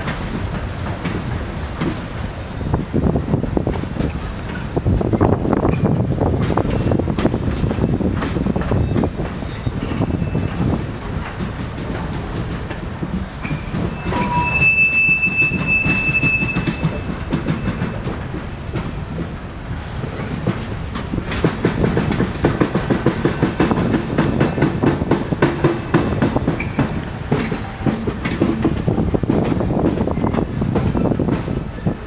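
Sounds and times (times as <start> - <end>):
train wheels rumbling and clacking: 0.0 - 32.0
high wheel squeal: 8.8 - 10.8, 13.3 - 18.0, 26.4 - 27.9.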